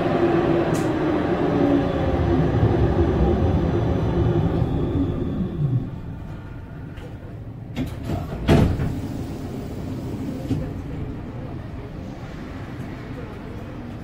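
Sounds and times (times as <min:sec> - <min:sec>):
tram humming: 0:00.0 - 0:14.0.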